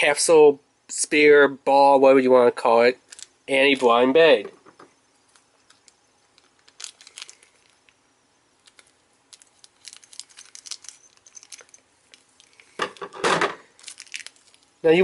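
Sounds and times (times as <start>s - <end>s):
plastic bag crinkling: 3.0s - 4.0s, 5.2s - 14.9s.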